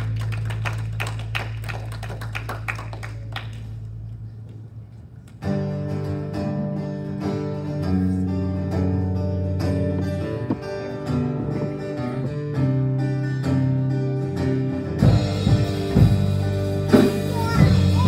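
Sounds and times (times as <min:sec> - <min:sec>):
guitars playing worship music: 0:05.2 - 0:18.0
acoustic guitar strumming: 0:05.4 - 0:18.0.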